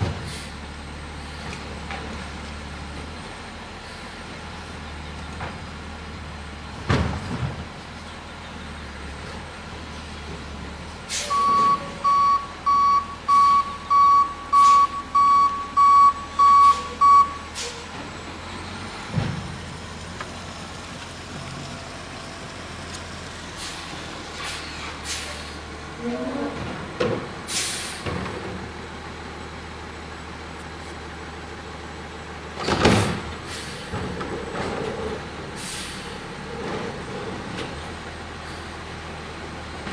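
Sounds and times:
diesel truck idling: 0.0 - 39.9
air brake hiss: 0.3 - 0.6, 11.1 - 11.4, 17.5 - 17.9, 23.6 - 25.6, 27.5 - 28.1, 33.4 - 33.9, 35.6 - 36.2
backup alarm beeping: 11.3 - 17.6
clunks: 19.0 - 20.4, 22.4 - 28.7, 32.5 - 35.4.

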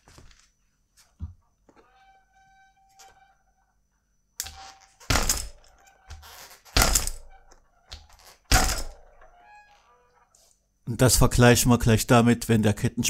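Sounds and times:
bike chain slapping and rattling: 4.4 - 7.4, 8.1 - 9.1.

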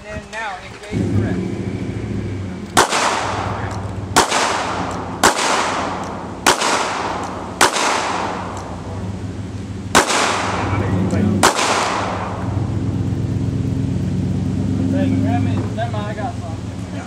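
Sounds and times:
steady low hum: 0.8 - 17.0
pistol shots with echo: 2.8 - 8.9, 9.9 - 12.6.

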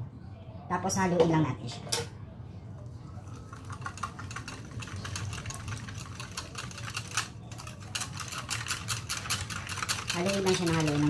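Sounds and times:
whisk clicking against metal bowl: 3.5 - 11.0.

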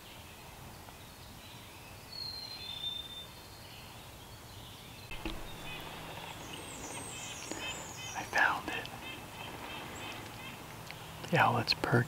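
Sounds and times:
low bump: 5.1 - 7.2
rustling: 5.1 - 11.0.

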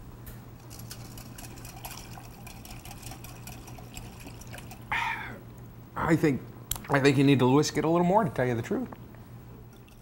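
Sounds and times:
liquid sloshing: 0.6 - 4.9.

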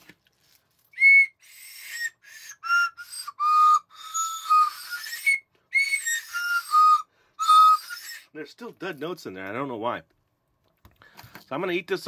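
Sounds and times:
toy whistle toots: 1.0 - 8.3.

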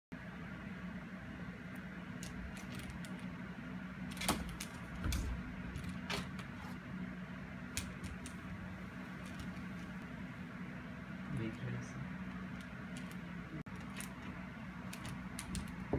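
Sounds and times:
steady low hum: 0.1 - 15.9.

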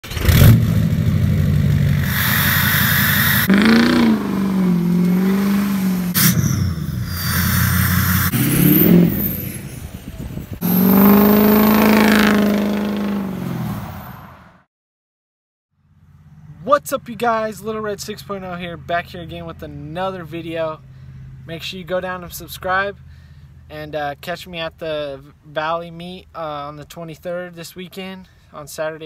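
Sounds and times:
diesel engine revving: 0.0 - 14.6.

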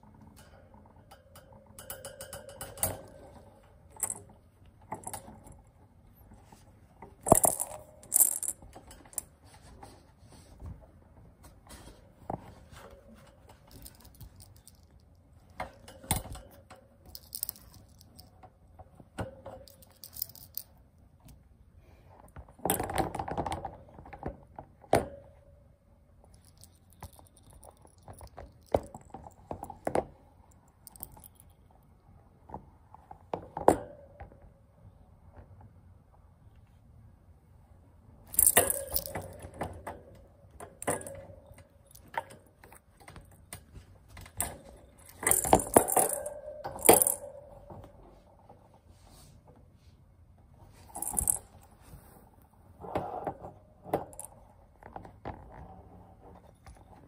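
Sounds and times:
toy rustling and scraping: 17.1 - 18.3, 19.7 - 20.7, 43.7 - 47.4, 50.7 - 52.3.

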